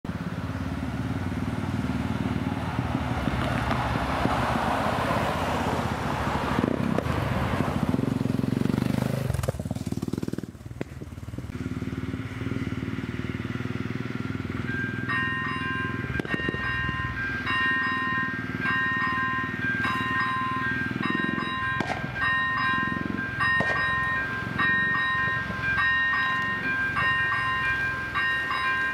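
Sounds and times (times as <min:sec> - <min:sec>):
motorcycle driving past: 0:00.1 - 0:26.6
car driving past: 0:00.2 - 0:10.4.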